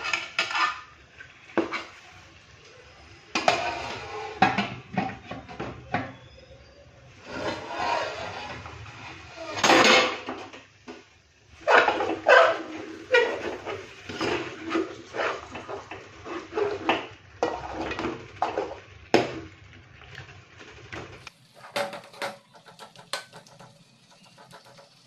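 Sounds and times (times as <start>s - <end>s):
metal spoon scraping a pan: 0.0s - 2.3s, 3.4s - 4.6s, 7.2s - 10.2s, 11.6s - 18.8s.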